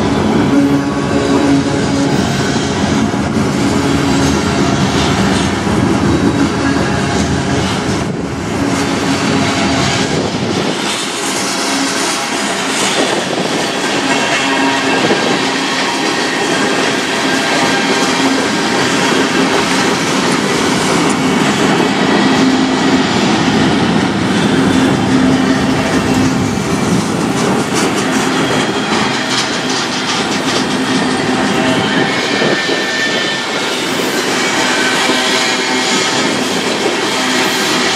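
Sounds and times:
train wheels rumbling on rails: 0.0 - 37.9
wheels clicking over rail joints: 23.4 - 37.9.

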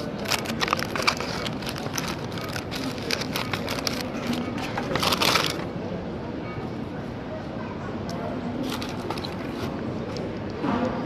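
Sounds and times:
paper wrapper crinkling: 0.0 - 5.7, 8.6 - 9.8.

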